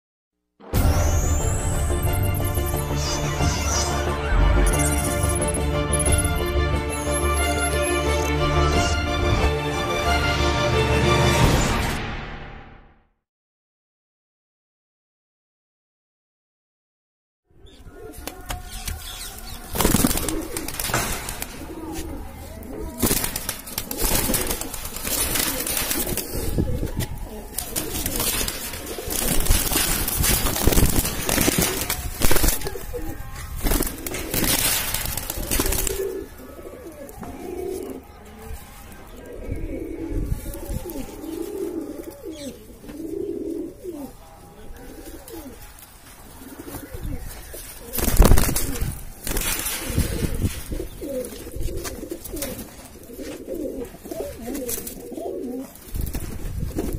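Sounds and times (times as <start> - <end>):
pigeons cooing: 17.6 - 56.9
rustling noise: 20.2 - 36.1, 44.9 - 56.9.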